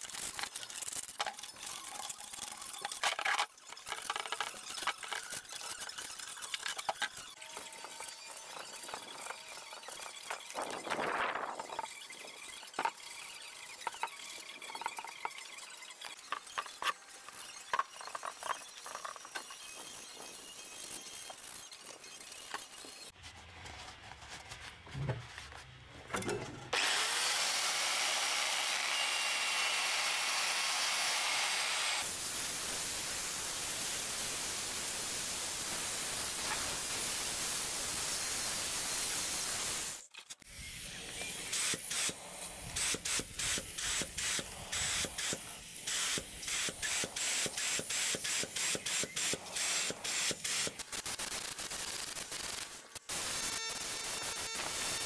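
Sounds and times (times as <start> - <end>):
scrapes and small knocks: 22.3 - 26.7
orbital sander running: 26.8 - 33.0.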